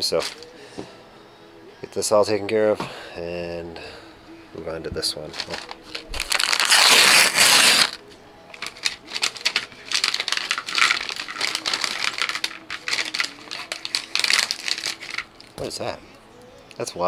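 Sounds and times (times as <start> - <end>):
foil bag crinkling: 5.2 - 15.8
plastic pieces clattering into tray: 8.6 - 15.3.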